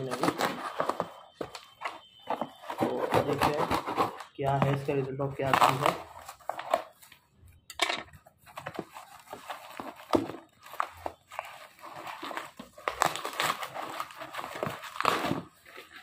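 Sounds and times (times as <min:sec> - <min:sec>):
paper crinkling and crackling: 0:00.0 - 0:07.4, 0:08.1 - 0:16.0
cardboard box being opened: 0:08.4 - 0:16.0.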